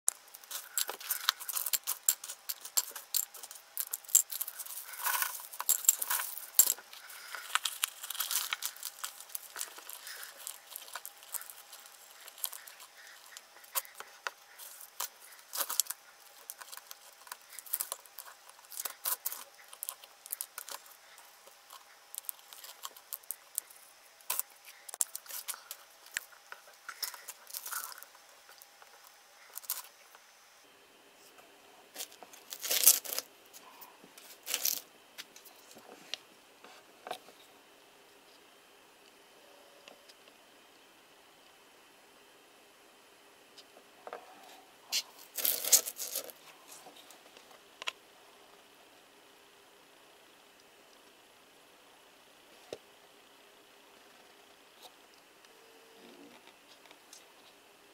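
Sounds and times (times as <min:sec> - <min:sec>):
potting soil crunching and rustling: 0:00.2 - 0:30.0, 0:32.0 - 0:33.3, 0:45.0 - 0:46.4.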